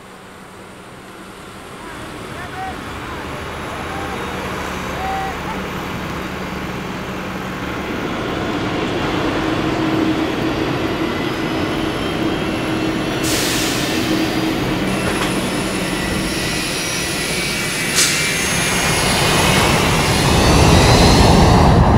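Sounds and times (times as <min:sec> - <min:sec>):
jet engine rumble and whine: 0:00.0 - 0:21.9
burst of hiss: 0:13.2 - 0:14.2, 0:15.2 - 0:19.1.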